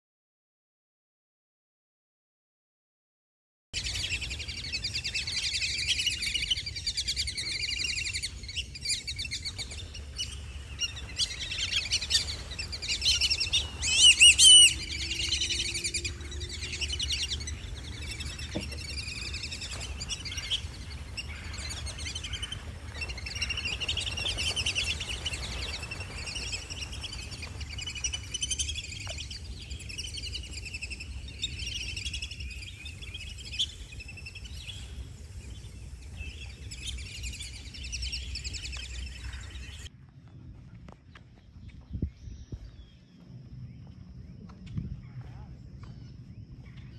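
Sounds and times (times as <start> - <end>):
ducks whistling: 3.8 - 39.9.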